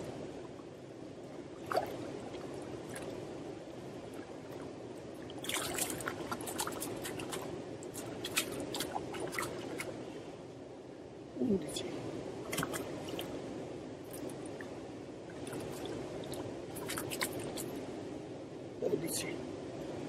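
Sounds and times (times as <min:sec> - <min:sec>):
water splashing and dripping: 0:01.6 - 0:03.2, 0:04.1 - 0:10.0, 0:12.5 - 0:13.3, 0:15.3 - 0:17.8.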